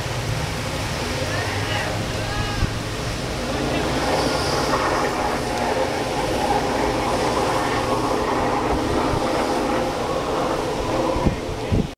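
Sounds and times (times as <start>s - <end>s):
rush of water spray: 0.0s - 11.9s.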